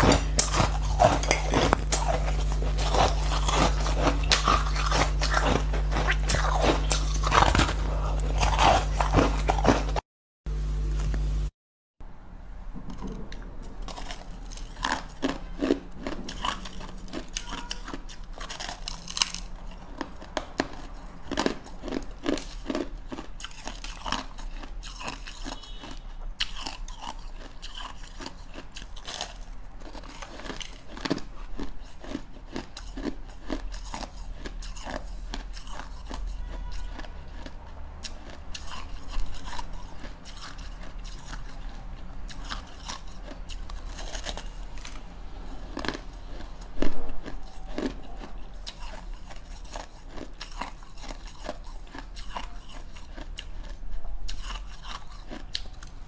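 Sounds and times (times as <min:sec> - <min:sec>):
crunching shaved ice: 0:00.0 - 0:10.0, 0:13.9 - 0:56.0.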